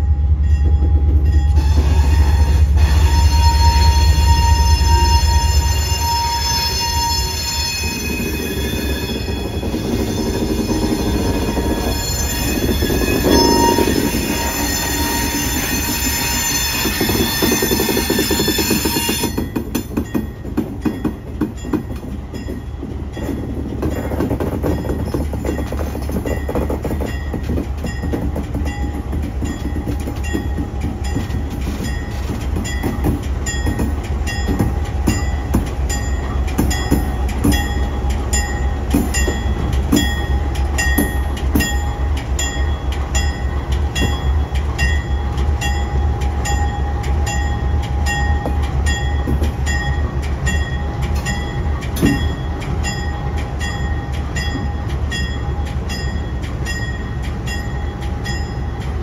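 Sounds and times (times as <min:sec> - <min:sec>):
wheels clicking over rail joints: 0:16.8 - 0:58.9.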